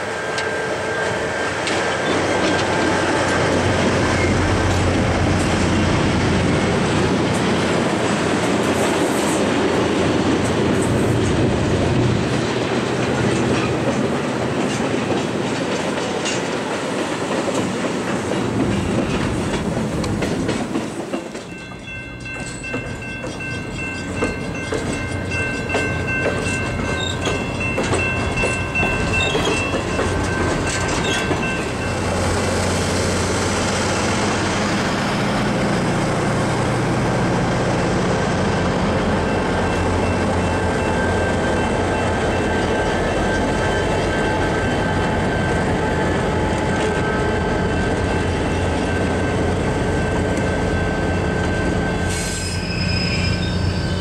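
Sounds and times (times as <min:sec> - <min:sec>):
diesel locomotive engine rumble: 0:00.0 - 0:54.0
train wheels clicking over rail joints: 0:00.4 - 0:35.2
high-pitched wheel squeal: 0:26.8 - 0:27.4, 0:28.8 - 0:29.8, 0:51.9 - 0:54.0.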